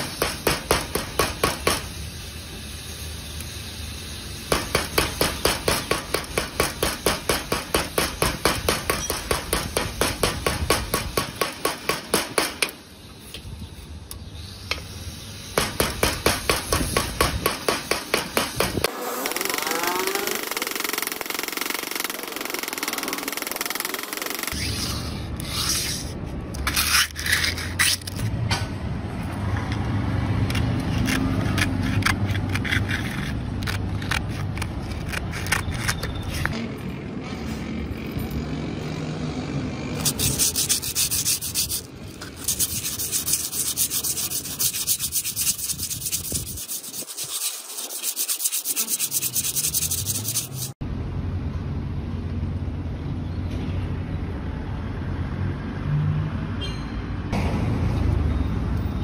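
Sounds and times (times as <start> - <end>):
sandpaper rasping on metal rods: 4.5 - 12.7, 15.5 - 28.3, 30.8 - 36.5, 40.0 - 50.8.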